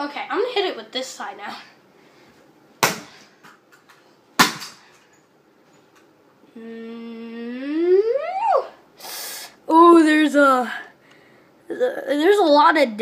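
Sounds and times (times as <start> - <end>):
person humming rising note: 6.5 - 8.4.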